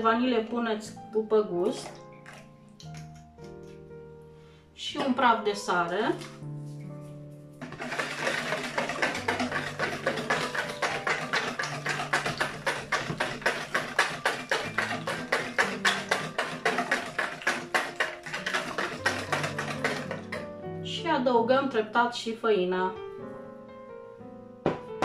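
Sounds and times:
soft jazz piano music: 0.0 - 7.7, 19.4 - 25.0
whisk beating batter in bowl: 7.6 - 20.4.

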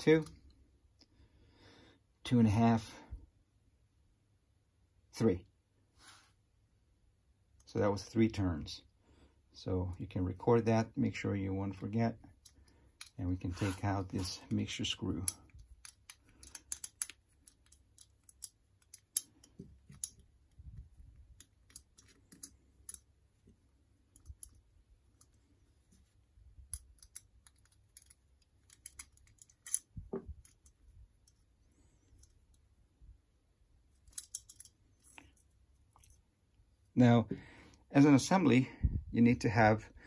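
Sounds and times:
metallic screwdriver clicks: 15.2 - 20.2, 26.7 - 30.8, 34.1 - 34.7.

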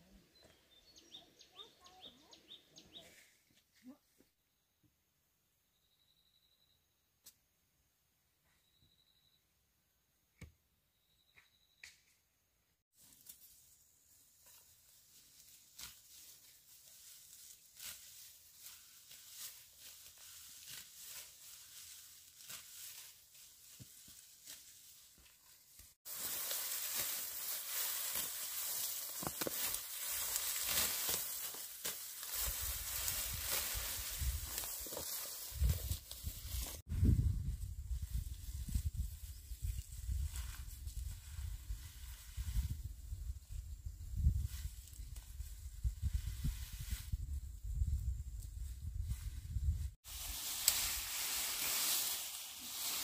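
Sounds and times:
grass stems rustling and tearing: 14.4 - 36.8, 50.1 - 53.0.

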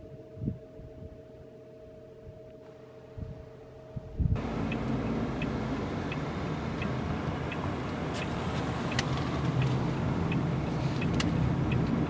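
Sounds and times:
car engine and road noise: 4.1 - 12.0
turn signal ticking: 4.4 - 12.0
sharp clicks: 4.5 - 12.0.

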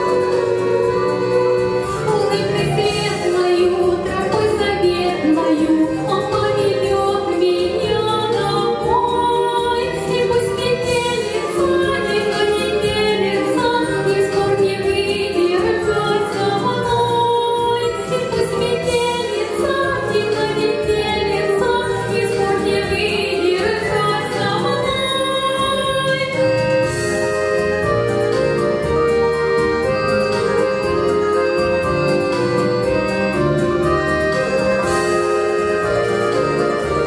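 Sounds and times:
musical accompaniment: 0.0 - 37.0
woman singing folk song: 2.1 - 26.5.

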